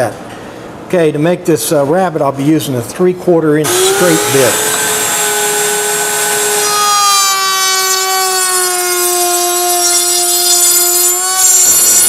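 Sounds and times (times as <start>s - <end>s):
router bit cutting wood: 3.6s - 12.0s
router motor whine: 3.6s - 12.0s.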